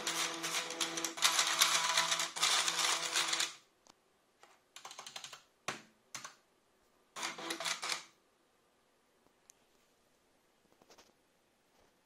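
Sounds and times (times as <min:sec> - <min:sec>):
keyboard keys clicking: 0:04.8 - 0:05.4.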